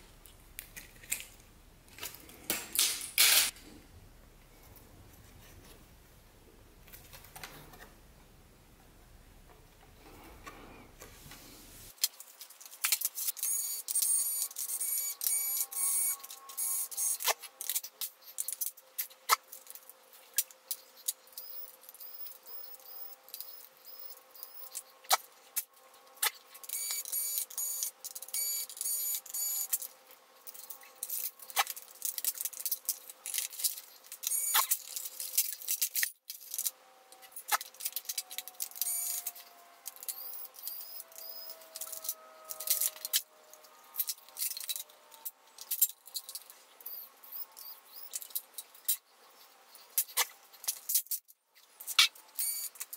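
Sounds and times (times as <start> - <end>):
clatter of plastic and metal parts: 24.7 - 46.6, 49.7 - 52.9
high-pitched chirping squeaks: 40.1 - 41.7, 46.8 - 48.2.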